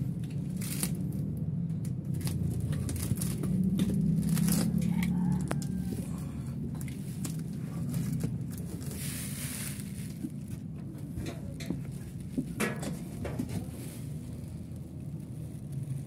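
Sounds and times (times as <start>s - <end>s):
low machine hum: 0.0s - 16.0s
equipment rustling and knocking: 9.8s - 14.2s.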